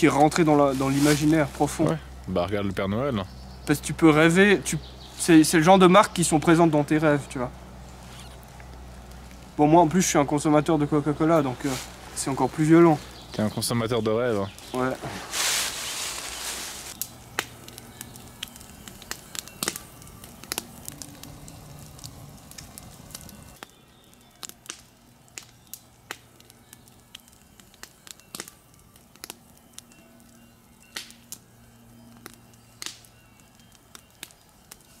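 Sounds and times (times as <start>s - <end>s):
quiet music with low held notes: 0.0s - 35.0s
sharp crackles and clicks: 7.8s - 10.6s, 11.4s - 35.0s.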